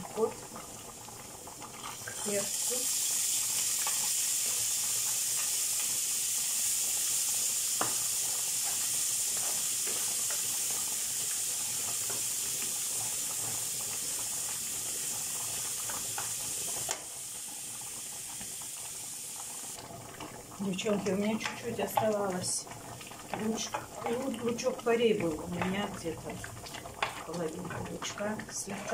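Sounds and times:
food sizzling in hot oil: 0.0s - 28.9s.

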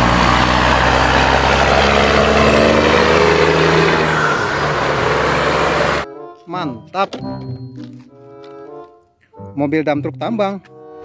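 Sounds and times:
truck driving past: 0.0s - 6.1s.

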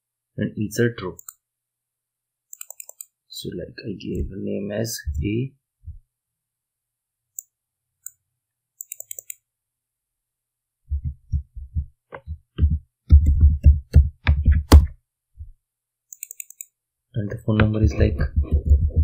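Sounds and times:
computer keyboard typing: 2.5s - 3.1s, 8.8s - 9.4s, 16.1s - 16.7s.

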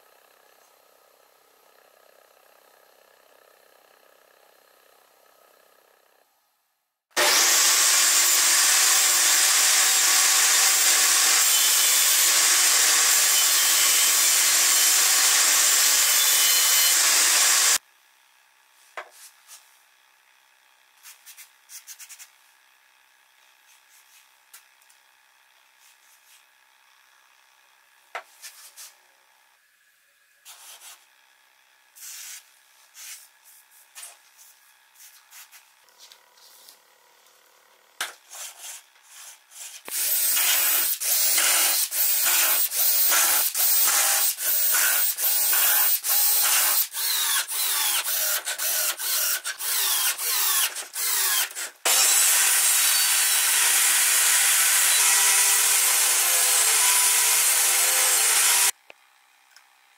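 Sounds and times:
cordless drill drilling into wood: 7.1s - 17.8s, 39.9s - 58.8s
power tool running: 7.1s - 17.8s, 34.5s - 58.9s.

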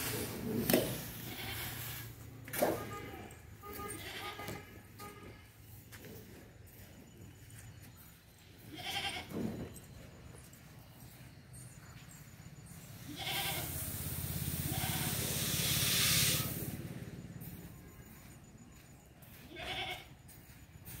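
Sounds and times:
goat bleating: 1.2s - 2.1s, 2.9s - 4.7s, 8.7s - 9.3s, 13.0s - 13.9s, 14.6s - 15.4s, 19.5s - 20.2s.

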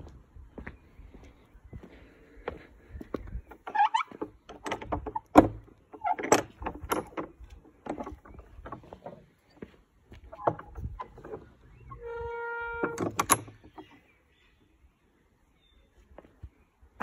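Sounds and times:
wooden gate knocking and rattling: 3.5s - 9.3s, 10.3s - 14.0s
gate creaking: 3.6s - 9.2s, 10.3s - 13.9s.

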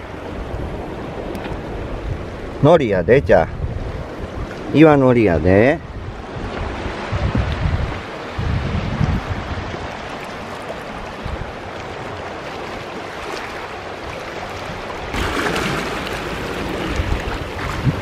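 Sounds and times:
wind buffeting microphone: 0.0s - 18.0s
waves washing over rocks: 3.8s - 18.0s.

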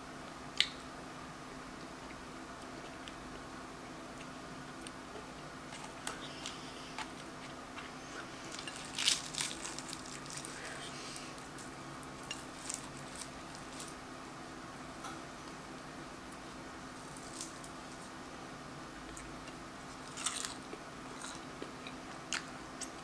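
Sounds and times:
puff pastry crackling: 5.6s - 14.1s, 16.4s - 18.2s.

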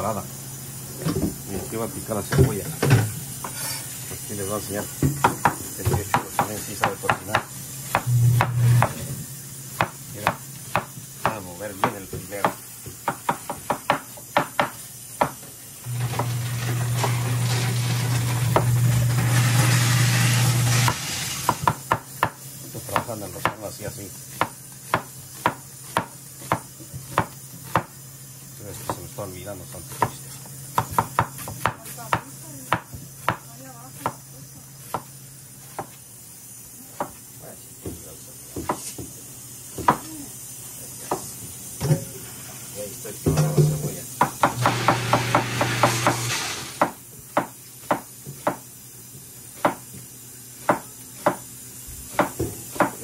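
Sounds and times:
meat sizzling on a griddle: 3.2s - 8.0s, 8.7s - 53.0s
knife chopping on cutting board: 5.0s - 9.1s, 9.7s - 15.4s, 20.7s - 23.7s, 24.3s - 28.0s, 28.7s - 29.1s, 29.9s - 36.0s, 36.9s - 37.2s, 37.8s - 40.1s, 41.0s - 42.0s, 43.3s - 48.7s, 49.5s - 53.0s
steady low hum: 7.3s - 10.0s.

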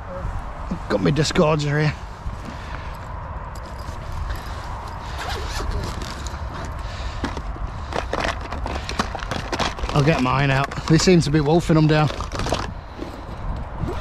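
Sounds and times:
zip being pulled open: 5.0s - 6.8s.

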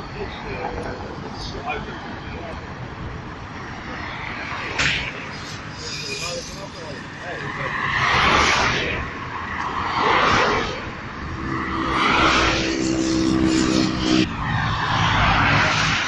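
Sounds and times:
cars driving past: 0.0s - 16.0s
engine droning: 4.5s - 16.0s.

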